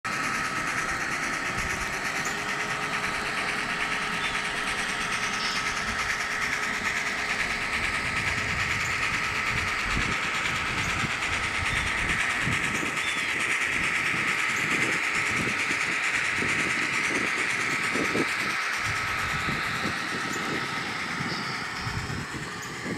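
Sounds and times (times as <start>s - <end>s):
model train motor whirr: 0.1s - 22.9s
thin steady whine: 0.1s - 22.9s.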